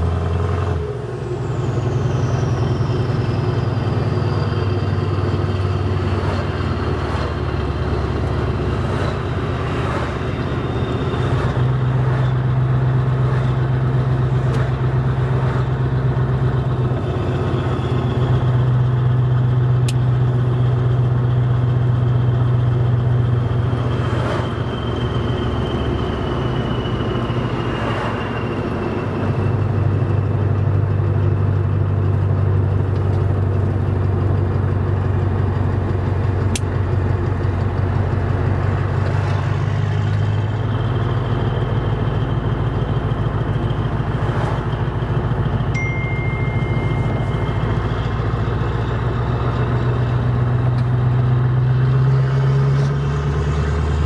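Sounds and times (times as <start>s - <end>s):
truck engine drone: 0.0s - 54.0s.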